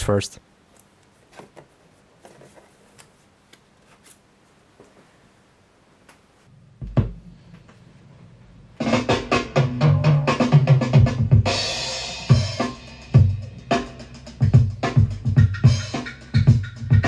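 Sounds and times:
record sleeves flipped: 0:00.7 - 0:05.1
drum beat from record: 0:08.8 - 0:17.0.

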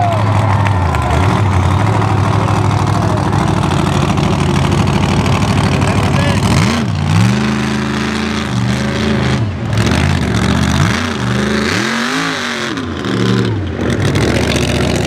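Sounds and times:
truck engine revving: 0:00.0 - 0:15.0.

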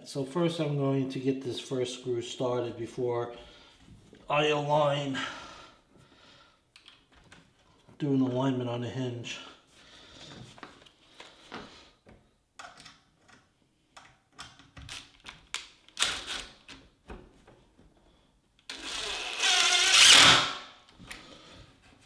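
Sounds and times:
cordless drill driving a screw: 0:18.7 - 0:20.6.

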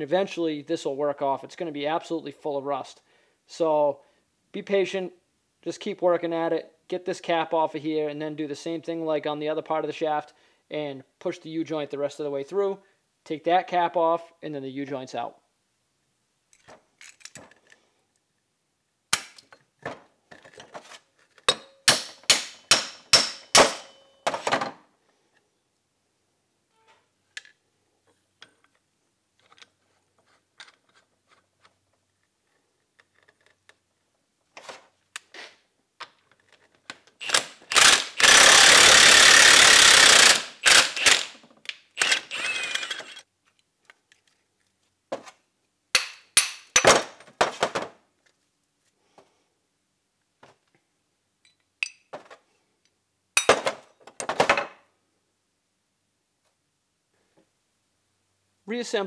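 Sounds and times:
impact wrench hammering: 0:21.5 - 0:24.2, 0:46.0 - 0:47.0.

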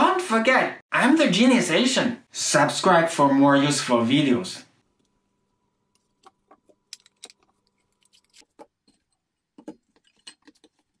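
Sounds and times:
faint clicks and clinks of parts: 0:05.9 - 0:11.0.

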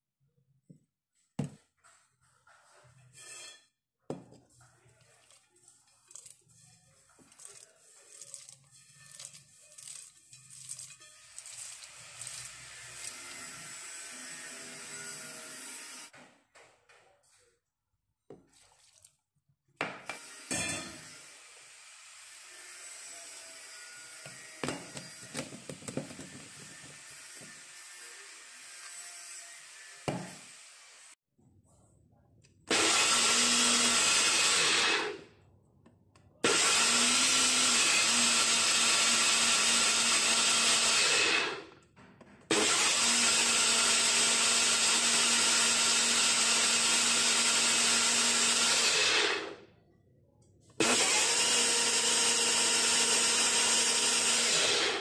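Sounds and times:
blender motor running: 0:11.4 - 0:16.1, 0:32.7 - 0:35.2, 0:36.4 - 0:41.7, 0:42.5 - 0:49.6, 0:50.8 - 0:55.0.

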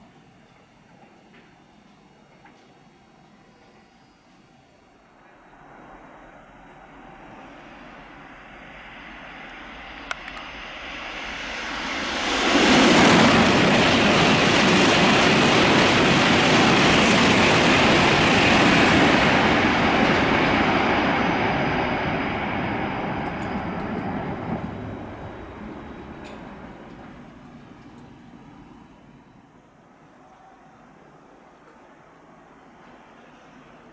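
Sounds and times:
train passing at high speed: 0:00.0 - 0:33.9.

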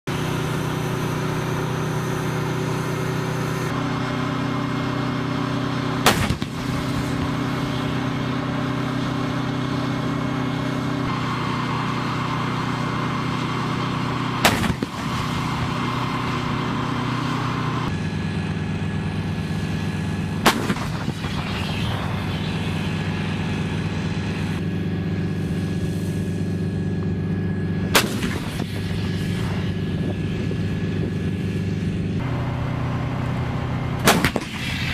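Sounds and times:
engine drone: 0:00.0 - 0:34.9
howitzer firing blasts: 0:05.9 - 0:08.4, 0:14.3 - 0:17.0, 0:18.9 - 0:24.6, 0:27.8 - 0:30.9, 0:34.0 - 0:34.9.

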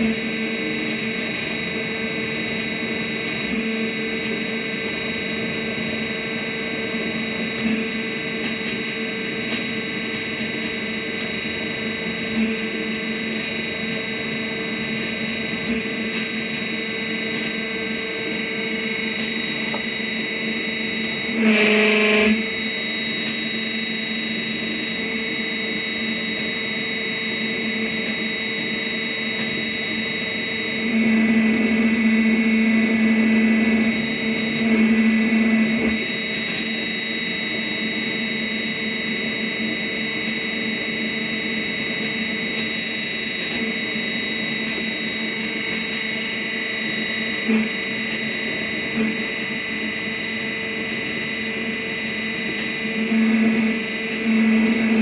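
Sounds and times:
electric hum with high whine: 0:00.0 - 0:55.0.

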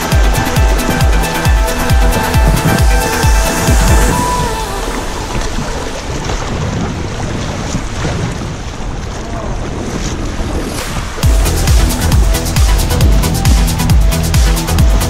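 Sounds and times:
electronic dance music: 0:00.0 - 0:05.4, 0:11.2 - 0:15.0
river rushing: 0:00.0 - 0:15.0
wind buffeting microphone: 0:00.0 - 0:15.0.

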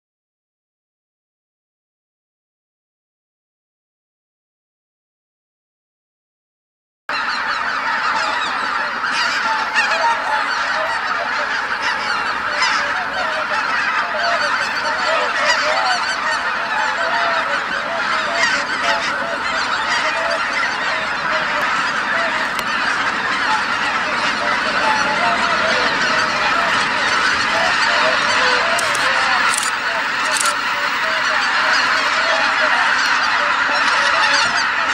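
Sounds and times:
geese honking: 0:07.1 - 0:34.9.

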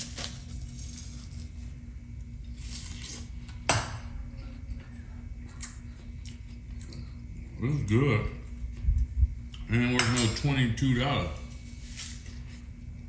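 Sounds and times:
knife scraping: 0:00.0 - 0:01.8, 0:02.4 - 0:03.5, 0:11.5 - 0:12.7
steady low hum: 0:00.0 - 0:13.0.

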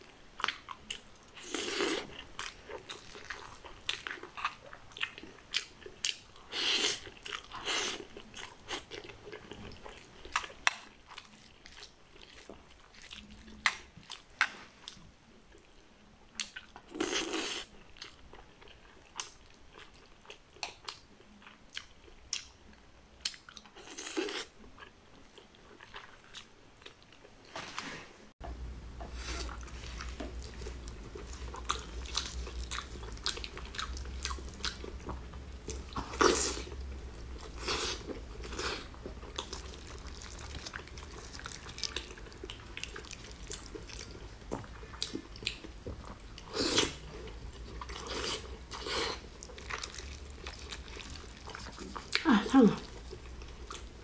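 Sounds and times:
chewing with wet mouth noises: 0:00.0 - 0:27.4, 0:29.0 - 0:54.0
steady low hum: 0:28.4 - 0:54.0.

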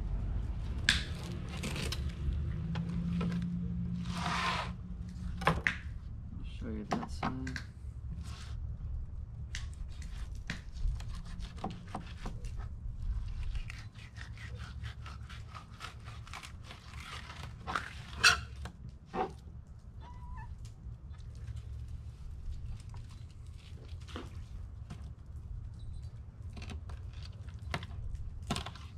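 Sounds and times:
knife scraping fish fillet: 0:10.0 - 0:18.6.

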